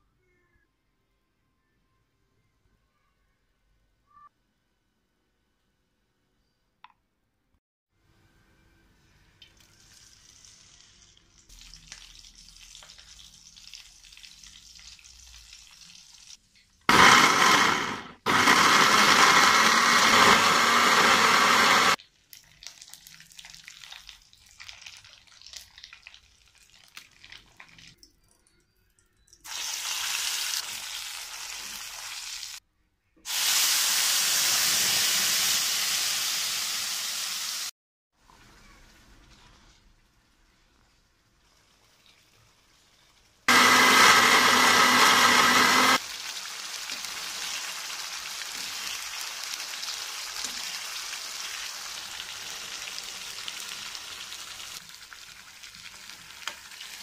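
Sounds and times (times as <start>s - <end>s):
electric blender grinding: 16.9s - 22.0s, 43.5s - 46.0s
paste sizzling in hot oil: 33.3s - 37.7s, 45.9s - 57.0s.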